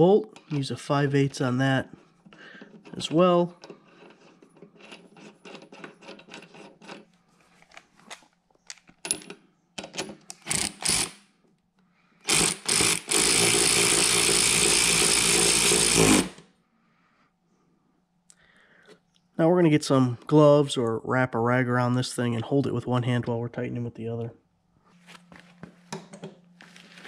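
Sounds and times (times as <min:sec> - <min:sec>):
cordless ratchet spinning: 0:12.3 - 0:16.4.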